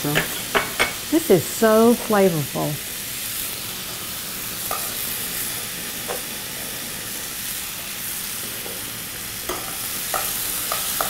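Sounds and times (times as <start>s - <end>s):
liquid sizzling in a pan: 0.0s - 11.0s
metal tongs clinking on pan: 4.7s - 5.0s, 9.5s - 11.0s.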